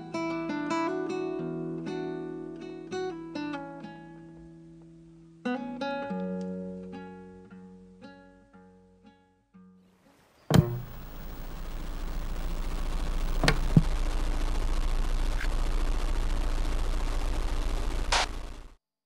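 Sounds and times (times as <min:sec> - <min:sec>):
tv static hiss: 0:09.9 - 0:18.8
glitchy crackles: 0:10.1 - 0:18.8
loud click: 0:10.5 - 0:11.1, 0:13.3 - 0:13.9
acoustic guitar notes: 0:10.5 - 0:12.2
low electrical hum: 0:10.5 - 0:18.7.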